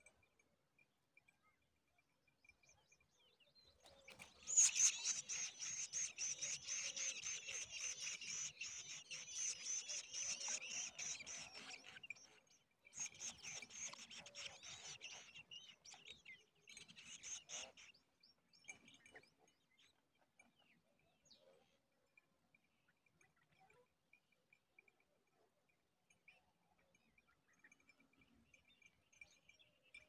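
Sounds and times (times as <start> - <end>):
nestlings begging calls: 4.4 - 11.9.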